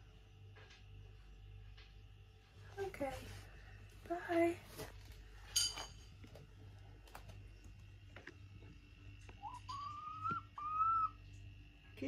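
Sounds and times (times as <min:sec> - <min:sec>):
hen giving high-pitched calls: 0:09.4 - 0:11.2.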